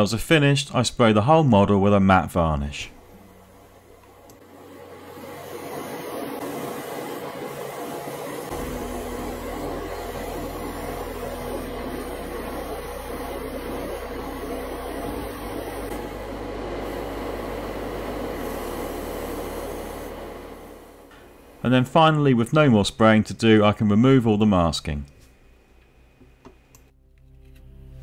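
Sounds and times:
motor drone: 0:02.9 - 0:21.7
airbrush spraying hiss: 0:05.0 - 0:21.1.

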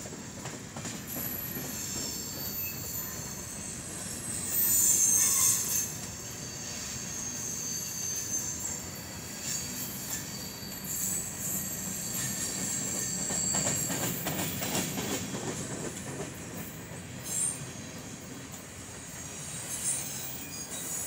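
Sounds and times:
freight train rumble: 0:00.0 - 0:21.0
wheel squeal: 0:01.1 - 0:15.2, 0:19.2 - 0:21.0
wheels clacking over rail joints: 0:12.2 - 0:17.4.

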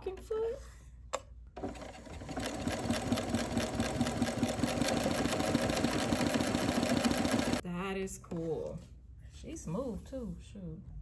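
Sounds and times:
sewing machine running: 0:01.6 - 0:07.6.

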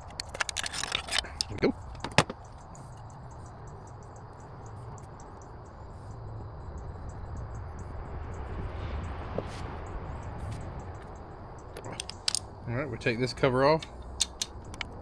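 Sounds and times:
steady low rumble: 0:01.4 - 0:15.0
rapid high-pitched chirping: 0:01.6 - 0:08.5.

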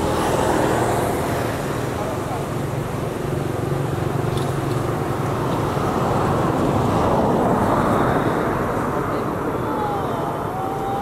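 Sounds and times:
vehicle passing by: 0:00.0 - 0:11.0.

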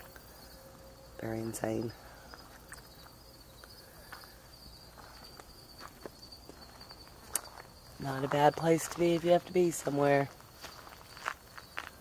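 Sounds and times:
high-pitched insect trill: 0:00.0 - 0:12.0
footsteps on grass: 0:04.9 - 0:12.0.

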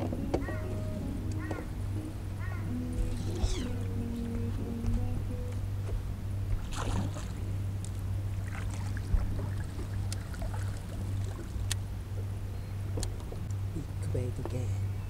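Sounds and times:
boat motor humming: 0:00.0 - 0:15.0
splash of fish in net: 0:06.7 - 0:07.3.

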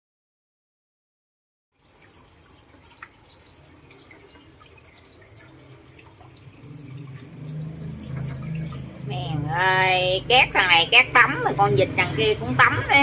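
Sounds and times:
bird splashing in water: 0:01.9 - 0:09.1
low hum: 0:06.2 - 0:12.6.

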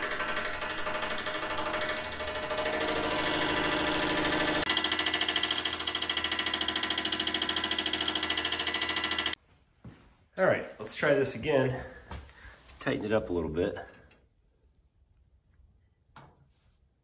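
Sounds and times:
heater blower fan spinning: 0:00.0 - 0:09.4.

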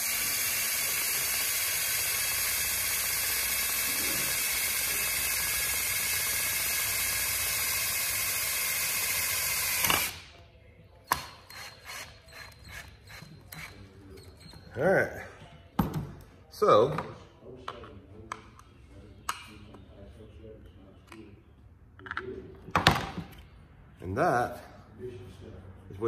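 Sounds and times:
cordless drill running under load: 0:00.0 - 0:10.2.

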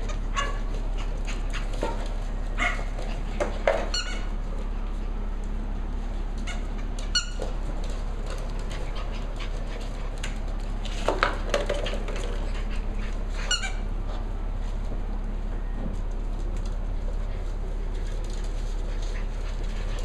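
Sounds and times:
puppies yipping: 0:00.0 - 0:04.5, 0:06.4 - 0:10.4, 0:12.0 - 0:14.0
paws clicking on wooden floor: 0:00.0 - 0:15.1, 0:15.8 - 0:20.0.

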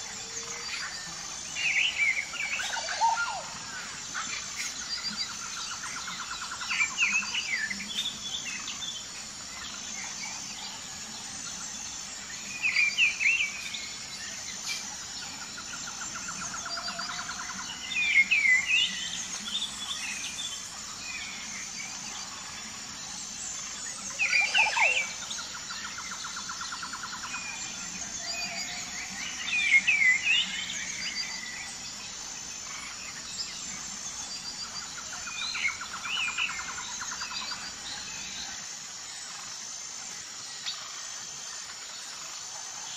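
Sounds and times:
insects chirring: 0:00.0 - 0:42.9
songbirds chirping: 0:00.0 - 0:42.9.

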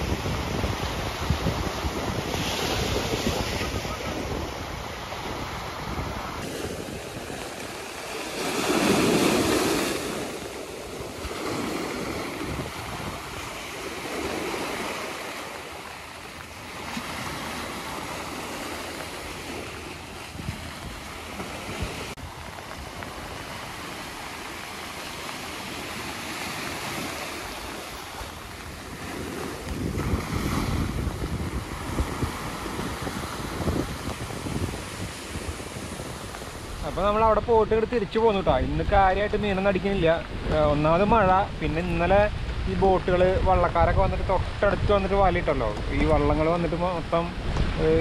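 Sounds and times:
sea waves breaking on beach: 0:00.0 - 0:48.0
wind gusts on microphone: 0:00.0 - 0:48.0.

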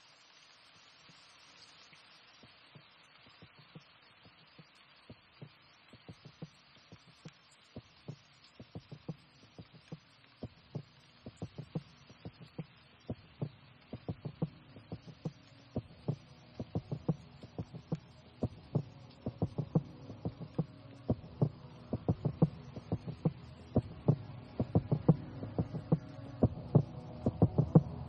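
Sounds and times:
low synth drone: 0:15.9 - 0:28.0.

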